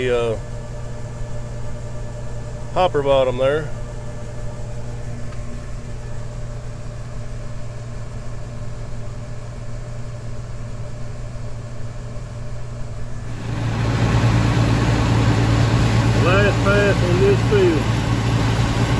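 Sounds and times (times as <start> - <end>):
tractor engine running: 13.2 - 18.9
auger unloading corn: 13.3 - 18.9.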